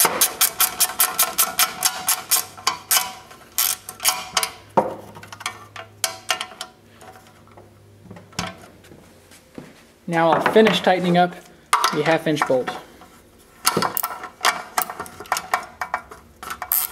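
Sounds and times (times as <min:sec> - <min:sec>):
ratcheting wrench clicking: 0:00.0 - 0:04.6, 0:16.6 - 0:16.9.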